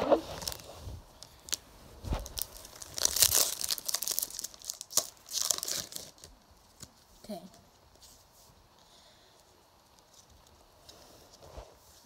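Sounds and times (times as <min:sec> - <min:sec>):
foil wrapper tearing and crinkling: 0:00.3 - 0:07.0.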